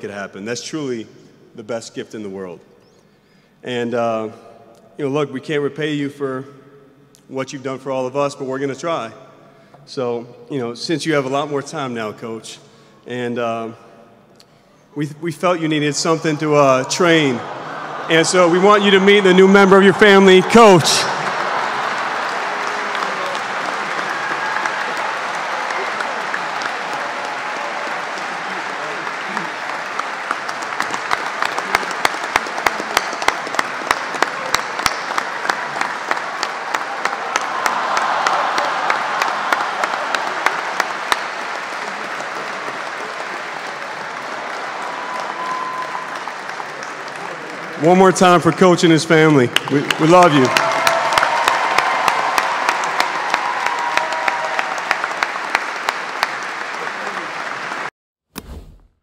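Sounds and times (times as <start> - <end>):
voices cheering: 16.0 - 57.9
audience applauding: 16.4 - 57.9
close loud hand clapping: 19.9 - 48.6, 49.3 - 57.9.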